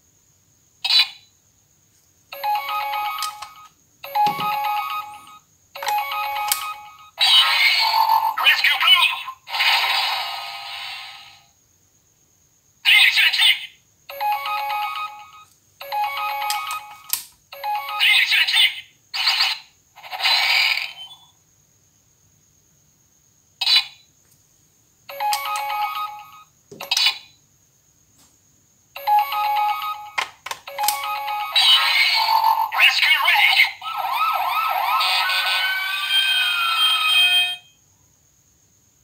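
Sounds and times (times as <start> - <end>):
toy electronic sound effects: 0.8 - 1.3, 2.3 - 11.4, 12.9 - 21.3, 23.6 - 24.0, 25.1 - 27.4, 29.0 - 37.8
recorded voice calls: 7.2 - 9.5, 12.8 - 13.8, 17.7 - 19.5, 31.5 - 37.6.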